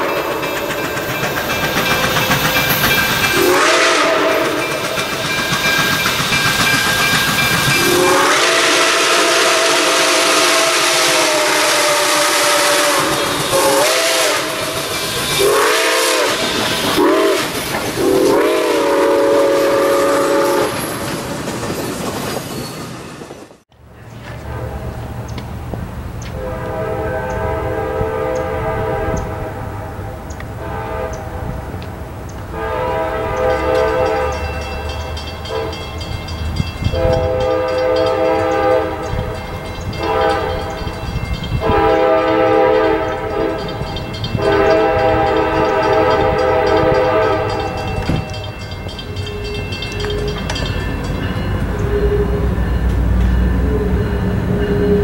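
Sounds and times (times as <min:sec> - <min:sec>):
train air horn blasts: 0:03.3 - 0:05.0, 0:07.8 - 0:21.1, 0:24.4 - 0:25.0, 0:26.3 - 0:31.8, 0:32.5 - 0:35.9, 0:36.8 - 0:48.6
diesel locomotive low rumble: 0:23.4 - 0:55.0.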